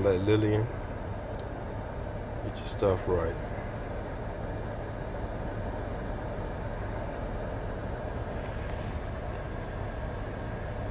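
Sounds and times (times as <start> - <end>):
car cabin hum and hiss: 0.0 - 10.9
faint rustle: 8.2 - 9.2.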